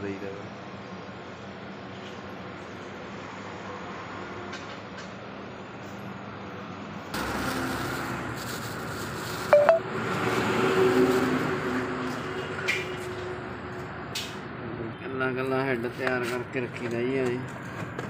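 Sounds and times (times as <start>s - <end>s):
high chirping beeps: 9.6s - 9.8s.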